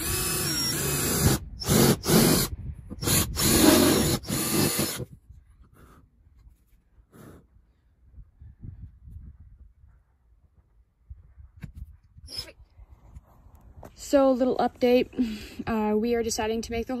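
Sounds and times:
drill cutting through sheet metal: 0.0 - 5.0.

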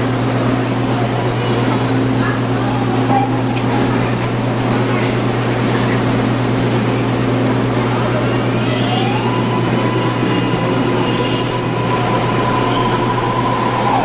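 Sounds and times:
train cars rolling: 3.0 - 14.0
train motor whine: 6.6 - 14.0.

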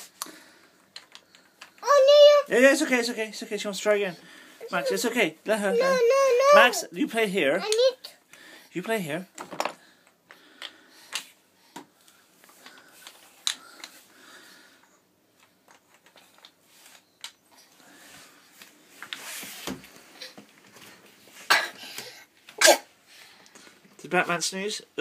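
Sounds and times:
rustle of handling: 15.8 - 21.5.

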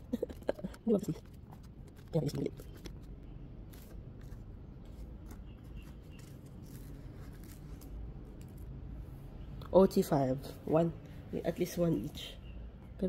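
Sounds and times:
paper cards rustling and scraping: 0.2 - 8.8.

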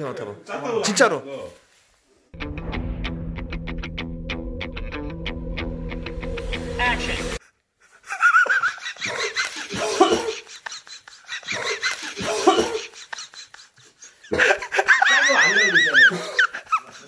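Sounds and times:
hearty laughter: 7.8 - 17.0.

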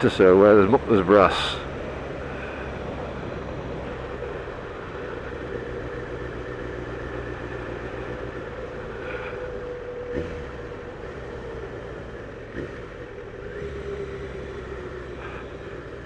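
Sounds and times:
motorcycle engine running: 0.0 - 16.0
road and wind noise: 0.0 - 16.0.

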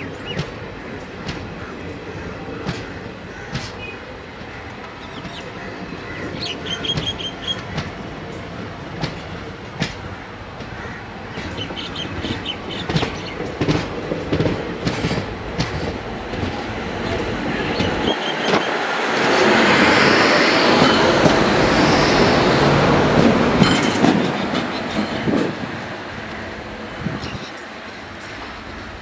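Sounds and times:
train wheels clicking over rail joints: 0.2 - 19.0, 20.6 - 26.4.

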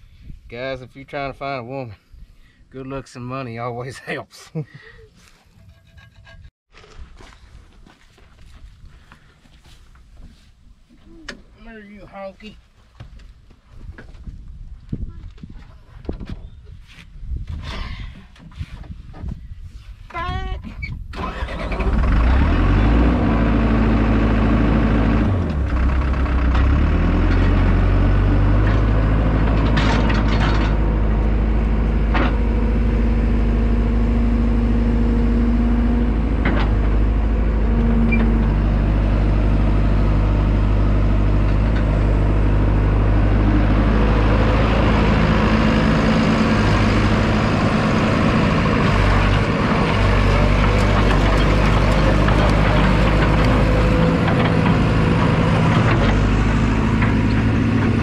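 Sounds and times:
excavator diesel engine running: 21.2 - 58.0.

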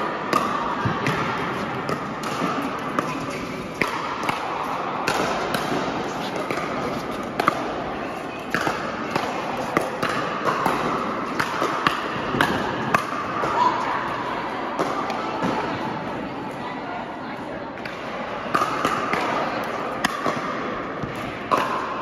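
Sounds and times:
murmur of voices: 0.0 - 22.0
paddles hitting plastic ball: 0.3 - 7.8.

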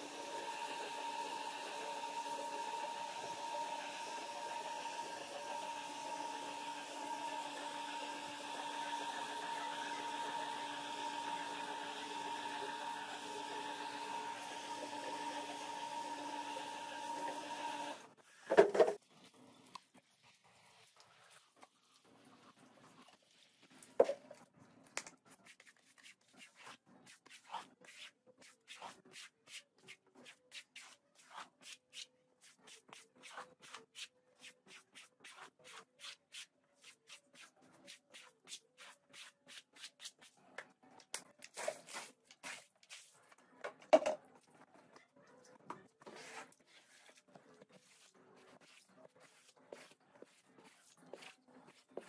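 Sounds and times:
brush scrubbing wet rug: 25.3 - 40.3, 46.1 - 52.0.

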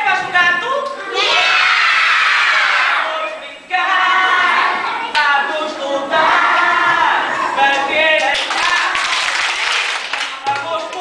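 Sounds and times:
children singing: 3.9 - 7.6.

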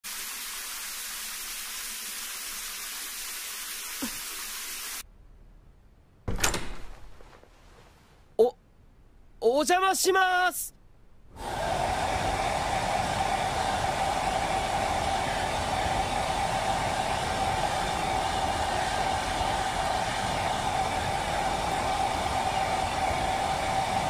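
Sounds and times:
hair dryer running: 11.3 - 24.0.

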